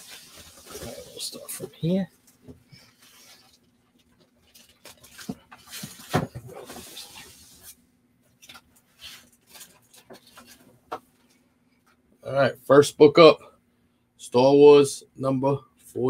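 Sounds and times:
packaging rustling and scraping: 0.0s - 1.8s, 2.8s - 11.4s.

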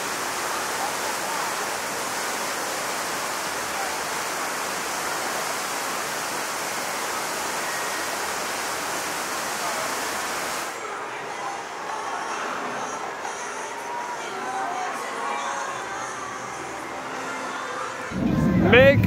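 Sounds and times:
rush of running water: 0.0s - 11.0s.

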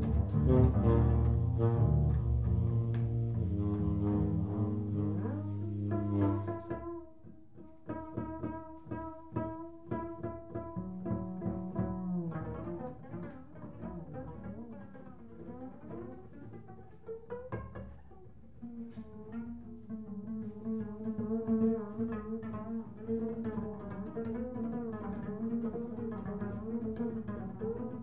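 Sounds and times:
tenor saxophone: 0.0s - 7.0s
plucked double bass: 0.0s - 28.0s.

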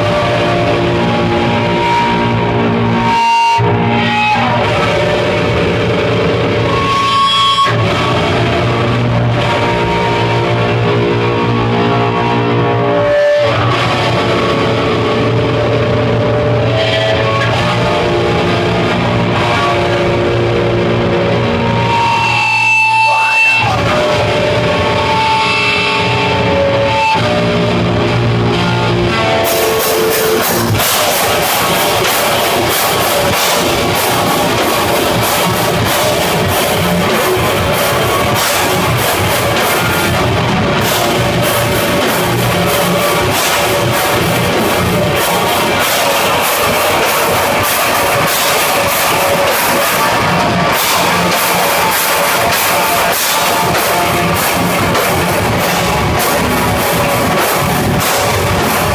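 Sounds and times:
heavy metal band playing live: 0.0s - 58.9s
held electric guitar notes: 0.0s - 58.9s.

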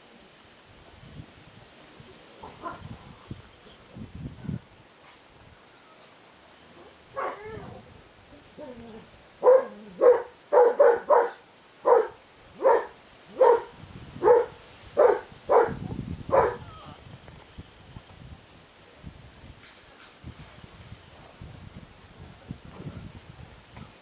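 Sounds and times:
puppy barking and yapping: 6.8s - 7.7s, 9.4s - 16.6s.

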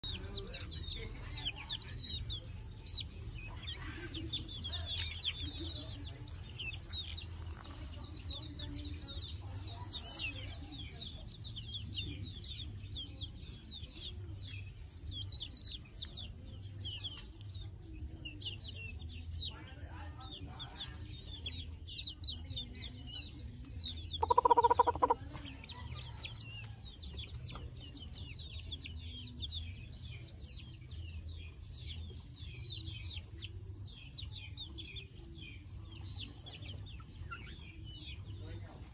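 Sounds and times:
chicks peeping: 0.0s - 38.9s
drawn-out chicken call: 24.2s - 25.2s.

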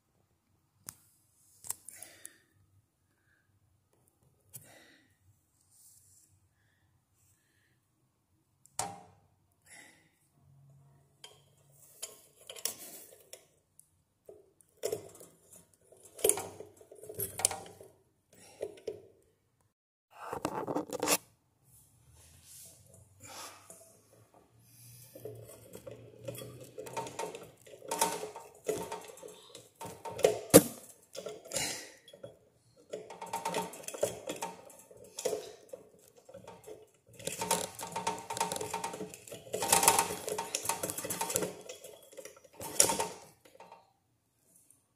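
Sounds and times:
metal parts clinking and rattling: 11.2s - 13.5s, 14.7s - 17.9s, 25.2s - 43.9s.

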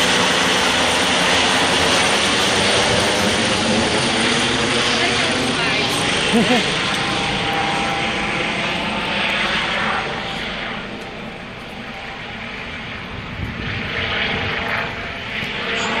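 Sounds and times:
helicopter rotor and turbine: 0.0s - 16.0s.

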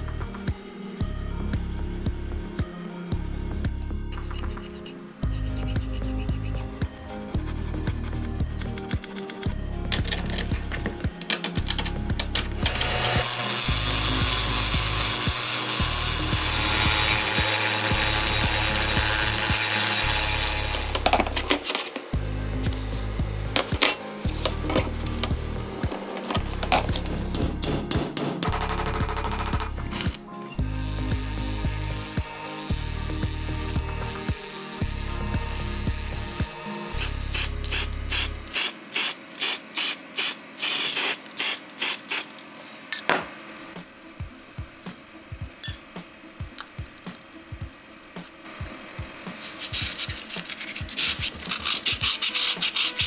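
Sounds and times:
rotary tool grinding metal: 4.1s - 27.4s, 30.9s - 43.1s, 49.2s - 53.0s
spray can hissing bursts: 36.9s - 42.4s, 48.2s - 53.0s.

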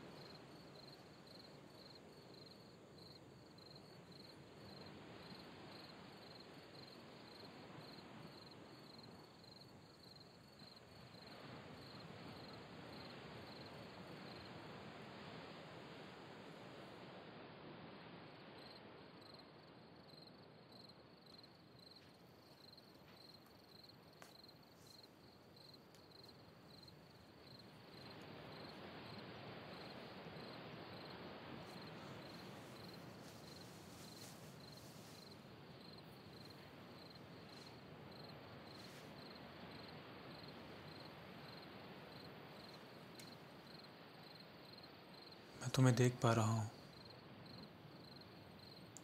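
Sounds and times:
crickets chirping: 0.0s - 49.0s
soft hiss: 20.9s - 49.0s.

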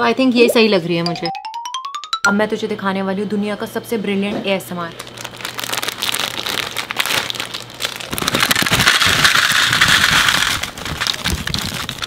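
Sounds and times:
dry noodles rustling and crackling: 5.0s - 12.0s
plastic packet crinkling: 5.0s - 12.0s.

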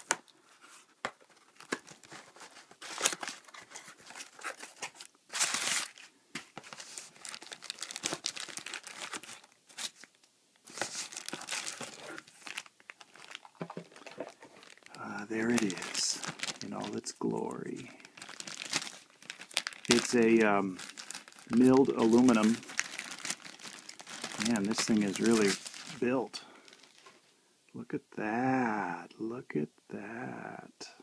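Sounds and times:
plastic bag crinkling: 6.6s - 10.1s, 10.7s - 27.2s.

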